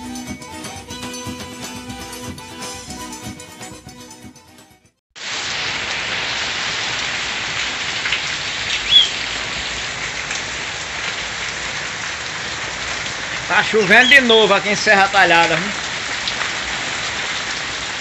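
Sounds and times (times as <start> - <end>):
heavy rain falling: 5.2 - 18.0.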